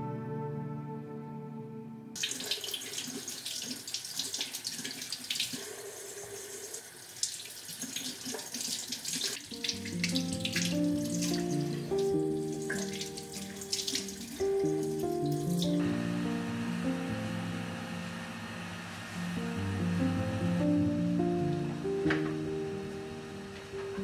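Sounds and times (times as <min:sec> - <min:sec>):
soft melody of held notes: 0:00.0 - 0:02.2, 0:09.5 - 0:24.0
tap water splashing over hands: 0:07.2 - 0:11.4, 0:12.7 - 0:14.5.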